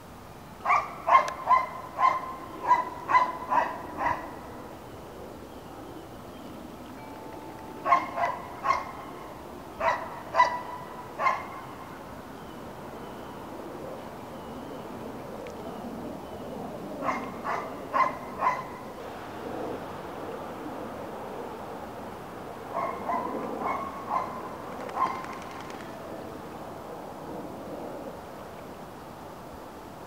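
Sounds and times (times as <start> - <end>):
dog barking: 0.7 - 4.4, 7.8 - 9.0, 9.8 - 11.6, 17.0 - 18.8, 22.7 - 25.4.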